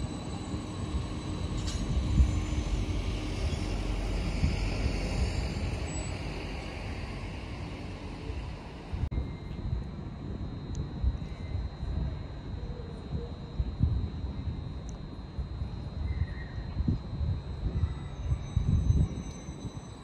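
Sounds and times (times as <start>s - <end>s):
train wheels rumbling on rails: 0.0s - 9.1s
faint hum: 0.0s - 20.0s.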